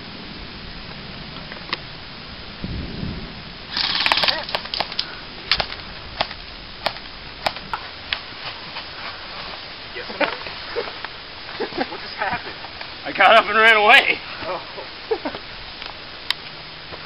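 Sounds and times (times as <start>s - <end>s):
airsoft guns firing: 3.7s - 5.7s.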